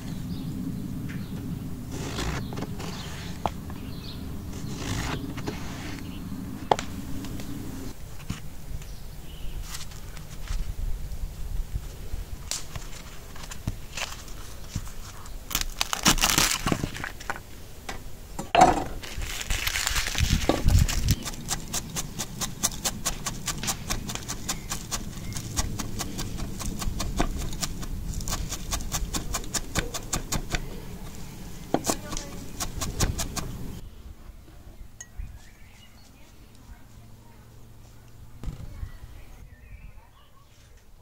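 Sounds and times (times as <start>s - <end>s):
rustling: 1.1s - 17.8s, 18.6s - 33.8s
knife chopping on wooden board: 21.2s - 30.7s, 31.7s - 33.7s.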